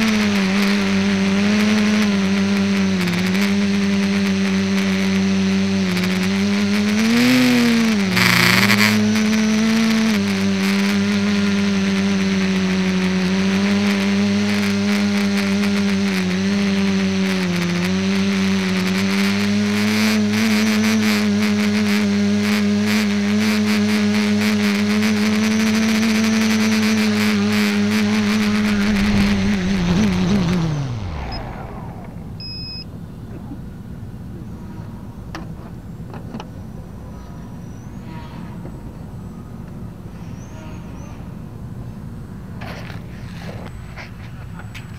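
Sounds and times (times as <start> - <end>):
model aircraft motors buzzing: 0.0 - 32.8.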